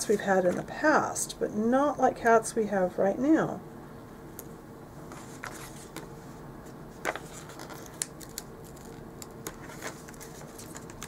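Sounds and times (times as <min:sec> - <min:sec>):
paper rustling: 0:05.1 - 0:06.1, 0:07.0 - 0:11.0.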